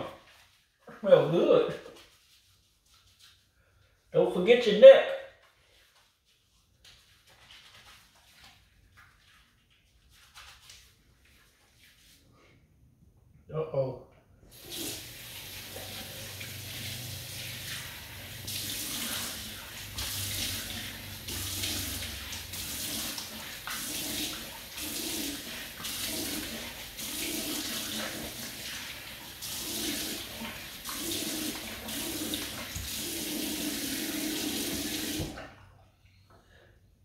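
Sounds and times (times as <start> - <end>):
sink tap running: 14.5 - 35.4
water splashing onto face: 14.5 - 35.5.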